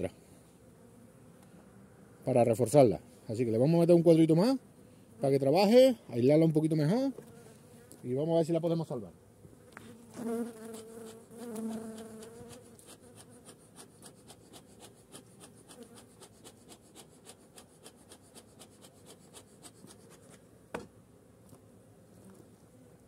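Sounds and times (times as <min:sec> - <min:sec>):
bees buzzing: 0:09.2 - 0:23.0
faint dry ticks: 0:10.7 - 0:20.4.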